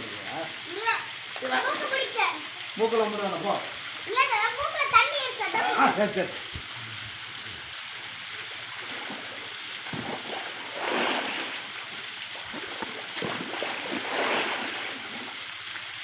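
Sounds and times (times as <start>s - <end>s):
swimmers splashing in a pool: 8.8s - 15.4s.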